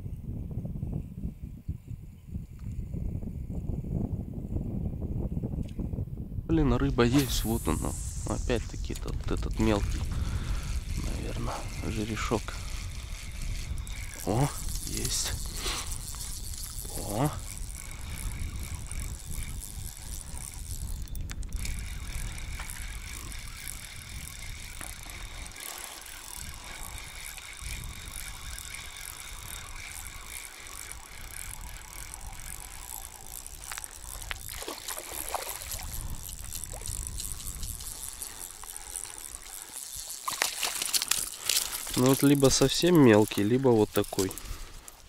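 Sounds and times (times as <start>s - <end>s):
wind rumbling on microphone: 0.0s - 45.0s
fishing reel being cranked: 6.8s - 45.0s
fish splashing at surface: 40.0s - 42.0s.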